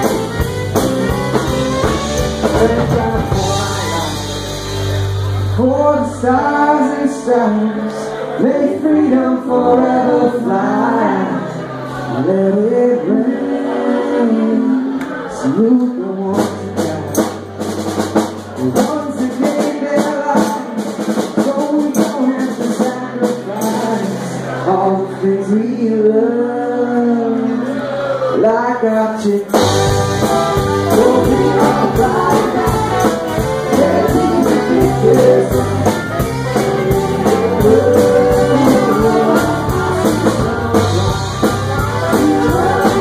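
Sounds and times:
people singing: 0:00.0 - 0:04.3, 0:05.6 - 0:17.2, 0:18.6 - 0:43.0
drums: 0:00.0 - 0:07.0, 0:14.9 - 0:25.2, 0:29.4 - 0:43.0
electric guitars: 0:00.0 - 0:25.6, 0:29.4 - 0:43.0
bass guitar: 0:00.0 - 0:43.0.

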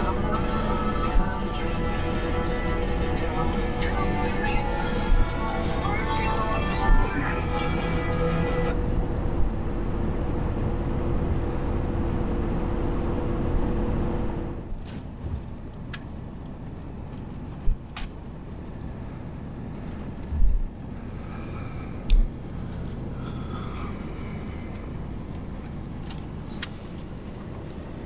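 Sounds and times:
car engine hum and road noise: 0:00.0 - 0:28.0.

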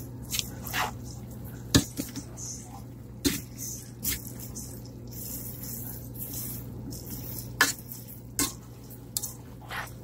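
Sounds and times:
noodles stirred in a pot: 0:03.2 - 0:10.0.

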